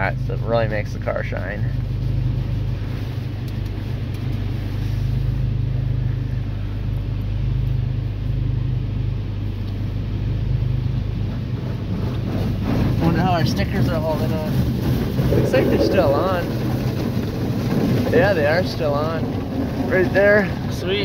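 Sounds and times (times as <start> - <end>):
steady low rumble: 0.0 - 21.0
water spray hitting car: 11.2 - 20.8.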